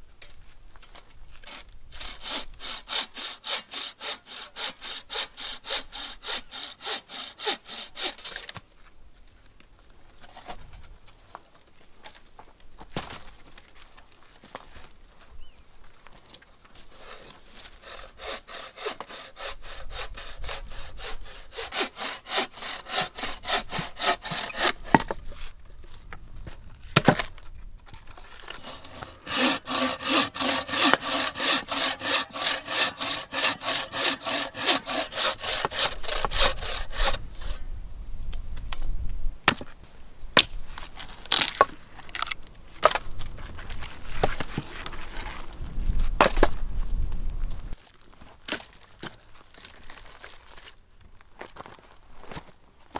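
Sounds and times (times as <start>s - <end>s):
bow saw cutting wood: 1.4s - 8.5s, 16.8s - 25.2s, 28.4s - 37.6s.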